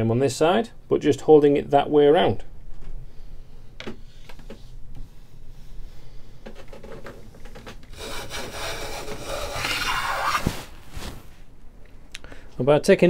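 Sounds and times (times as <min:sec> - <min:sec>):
hand plane shaving wood: 0:08.0 - 0:10.6.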